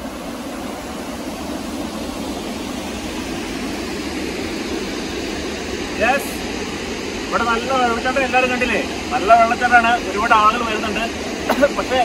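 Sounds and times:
waterfall rushing over rocks: 0.0 - 6.4.

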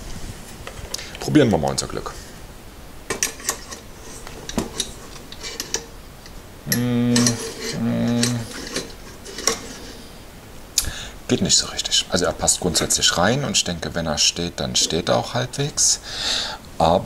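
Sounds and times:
metal pot clicking and scraping: 3.1 - 10.0
man humming: 6.6 - 8.9.

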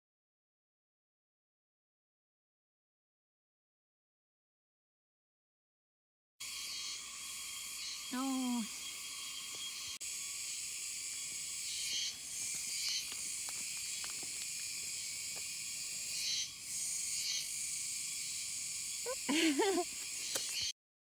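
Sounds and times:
insects buzzing: 6.4 - 20.7.

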